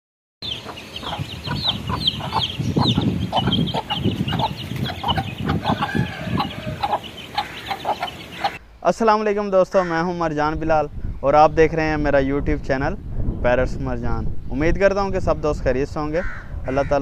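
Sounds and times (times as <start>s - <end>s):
chicks peeping: 0.4s - 8.6s
hen clucking: 0.4s - 8.6s.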